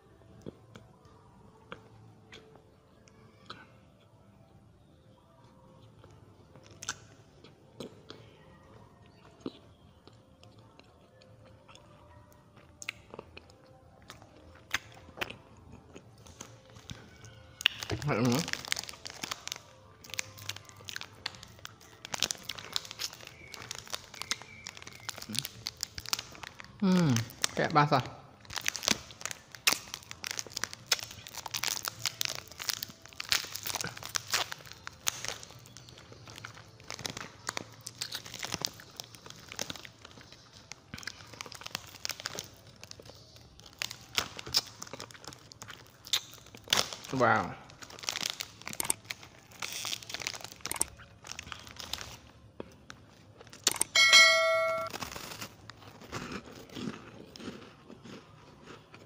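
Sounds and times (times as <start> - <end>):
plastic wrapper crinkling and tearing: 16.2 - 54.0, 54.9 - 58.7
loud bell-like ding: 53.9 - 55.0.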